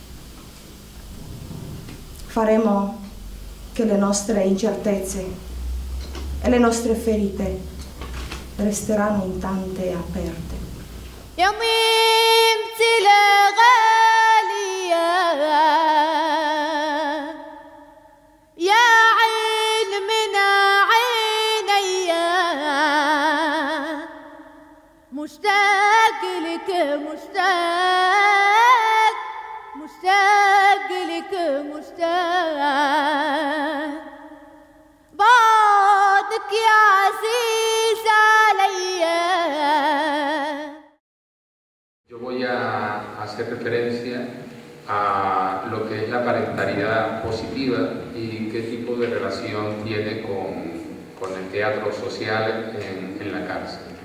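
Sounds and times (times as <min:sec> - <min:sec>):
woman singing unaccompanied: 0:02.3 - 0:05.7, 0:06.3 - 0:07.8, 0:08.5 - 0:10.6, 0:11.3 - 0:40.8.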